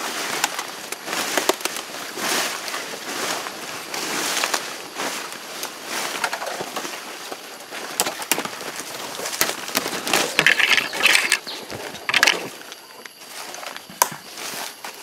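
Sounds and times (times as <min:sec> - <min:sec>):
brushing through undergrowth: 0:00.0 - 0:15.0
footsteps crunching dry leaves: 0:00.0 - 0:15.0
twigs snapping: 0:00.4 - 0:01.8, 0:07.9 - 0:12.5.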